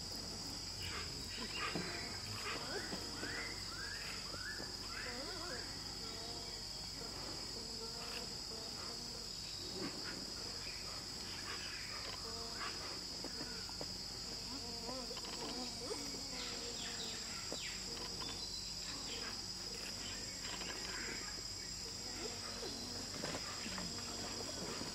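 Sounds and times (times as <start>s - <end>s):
rainforest insects droning: 0.0s - 24.9s.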